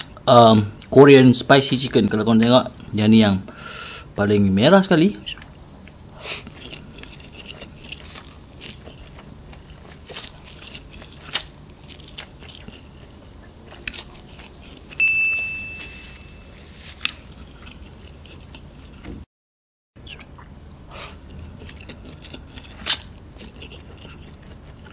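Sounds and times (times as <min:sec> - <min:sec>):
chewing noodles mouth sounds: 0:06.1 - 0:15.0, 0:16.8 - 0:19.1, 0:20.0 - 0:24.9
high steady tone: 0:15.0 - 0:16.8.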